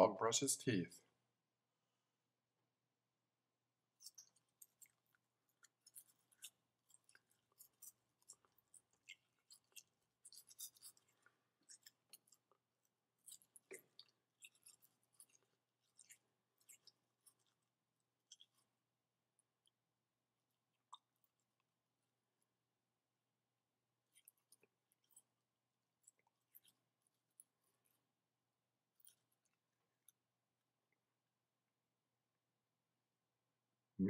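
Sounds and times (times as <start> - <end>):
dog licking a toothbrush: 4.0 - 18.7.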